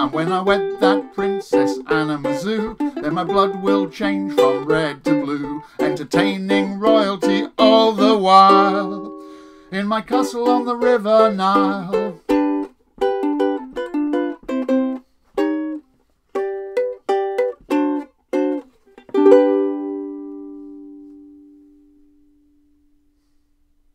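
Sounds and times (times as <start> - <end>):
ukulele ragtime chords: 0.0 - 22.9.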